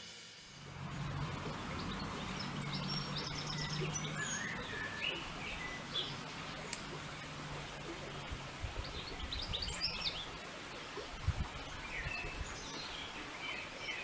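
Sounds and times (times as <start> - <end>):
low background hum: 0.6 - 13.8
small birds chirping: 0.8 - 10.5.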